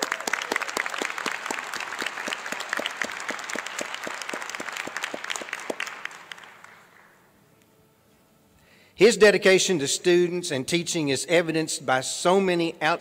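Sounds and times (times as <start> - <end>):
audience applause: 0.0 - 7.2.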